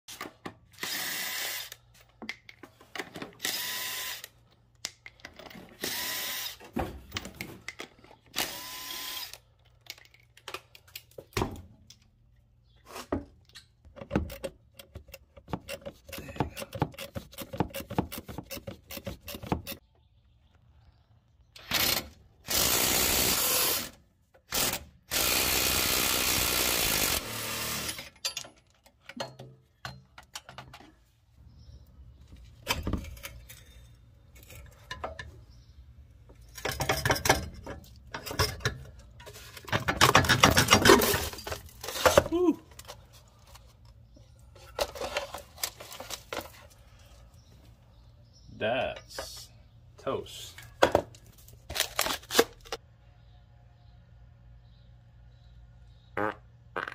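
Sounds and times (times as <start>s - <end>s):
impact wrench whirring: 3.4s - 4.3s, 8.4s - 9.4s, 24.5s - 28.1s.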